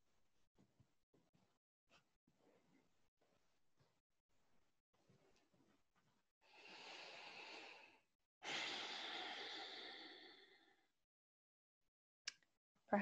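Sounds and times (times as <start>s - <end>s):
woman breathing in and sighing: 6.4s - 10.9s.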